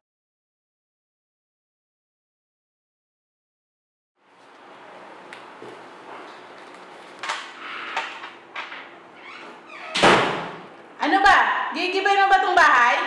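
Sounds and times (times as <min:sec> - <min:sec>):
playing cards being handled: 0:04.4 - 0:08.3
door slamming shut: 0:09.7 - 0:10.7.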